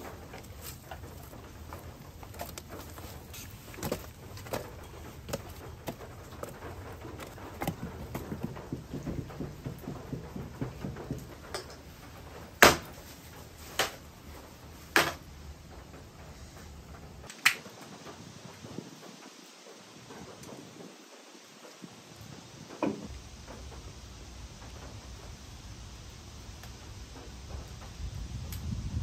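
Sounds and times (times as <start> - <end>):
logs knocking and clattering: 0.0 - 13.0
fire crackling: 0.0 - 29.0.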